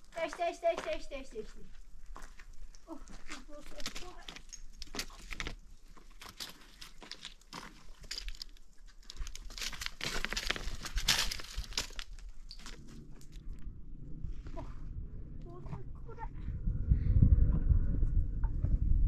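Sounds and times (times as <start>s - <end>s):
crinkling and crunching: 1.7s - 13.6s.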